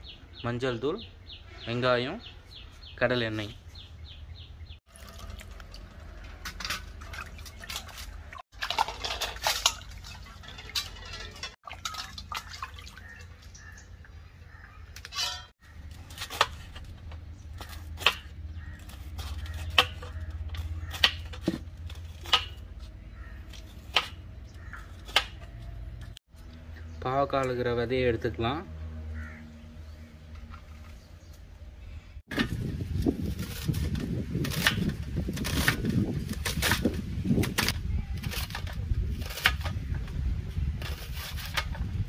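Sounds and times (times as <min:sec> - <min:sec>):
water dripping: 0:04.9 - 0:06.2, 0:06.8 - 0:14.3
water splashing in steel bowl: 0:04.9 - 0:14.2.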